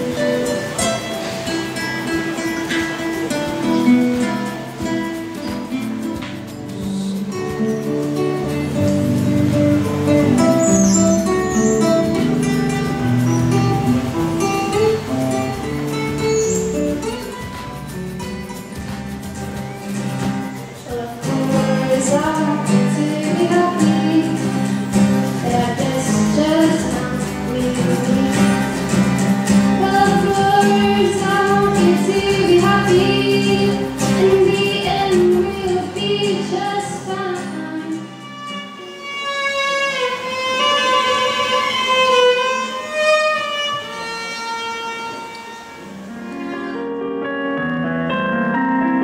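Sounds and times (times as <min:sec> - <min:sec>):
acoustic guitar: 0:00.0 - 0:49.0
solo violin melody: 0:08.7 - 0:18.3, 0:20.8 - 0:47.4
woman singing: 0:20.8 - 0:29.0, 0:29.6 - 0:38.3.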